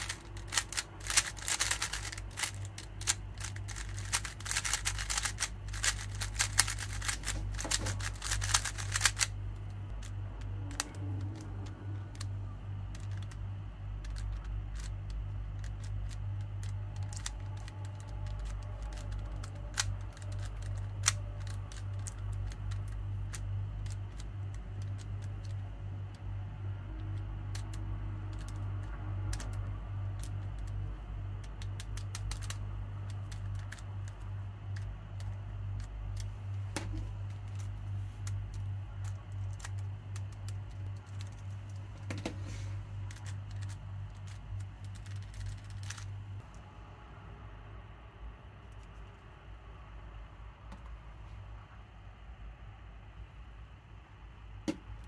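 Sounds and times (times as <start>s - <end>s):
puzzle cube clicking: 0.0s - 12.3s, 12.9s - 13.4s, 14.0s - 25.6s, 27.2s - 29.6s, 31.4s - 34.2s, 37.3s - 42.1s, 43.0s - 46.1s
steady low hum: 0.0s - 55.0s.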